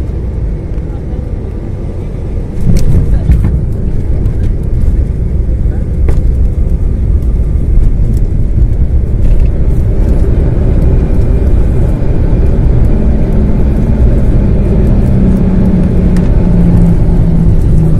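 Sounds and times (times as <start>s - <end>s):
deep rumble of engines and wheels: 0.0s - 17.9s
low hum: 0.0s - 17.9s.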